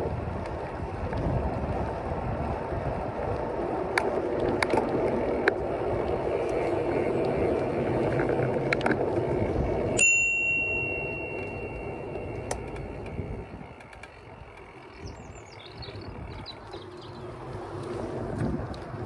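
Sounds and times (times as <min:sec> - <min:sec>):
riding rumble and wind noise: 0:00.0 - 0:19.0
bicycle bell ding: 0:10.0 - 0:12.6.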